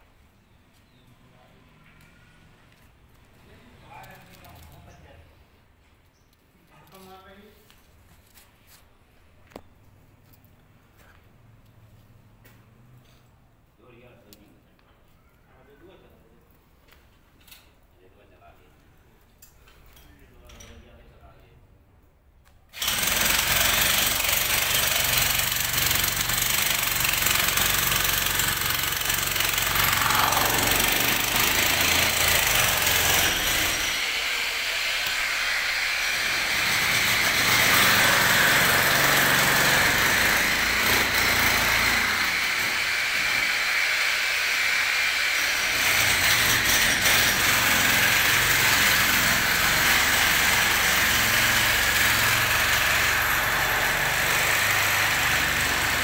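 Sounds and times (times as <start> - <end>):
motor running: 28.9 - 32.5.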